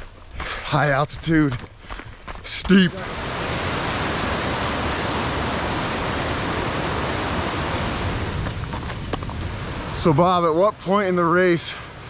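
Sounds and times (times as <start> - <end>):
creek rushing over rocks: 2.4 - 12.0.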